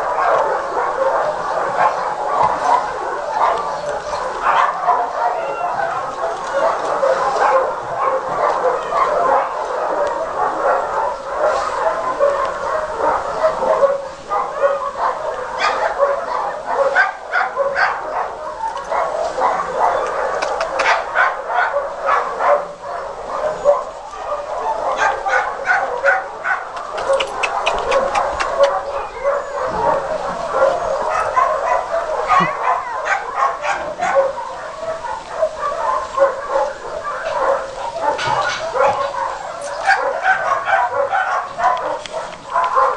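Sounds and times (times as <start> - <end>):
dog whining and yipping: 5.2 - 6.0.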